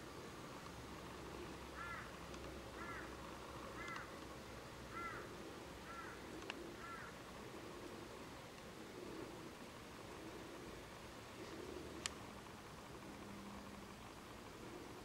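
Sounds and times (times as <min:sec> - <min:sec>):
faint steady hiss: 0:00.0 - 0:15.0
bird calling: 0:01.0 - 0:12.4
sharp tick: 0:03.8 - 0:04.3.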